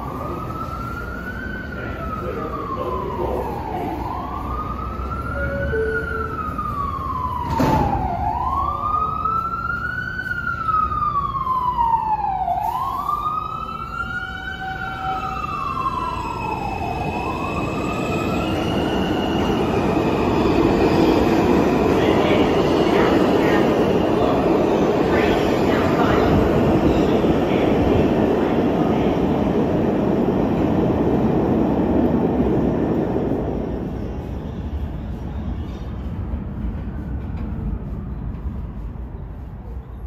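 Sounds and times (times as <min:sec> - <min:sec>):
siren wailing: 0:00.0 - 0:29.7
subway train pulling out: 0:00.0 - 0:40.0.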